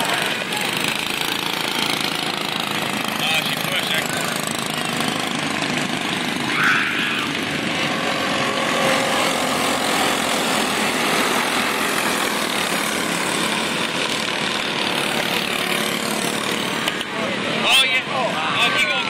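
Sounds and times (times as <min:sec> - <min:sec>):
go-kart engines buzzing: 0:00.0 - 0:19.0.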